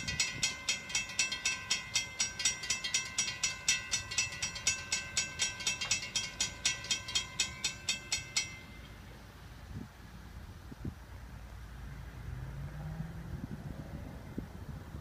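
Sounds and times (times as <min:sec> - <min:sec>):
crossing warning bells ringing: 0:00.0 - 0:09.6.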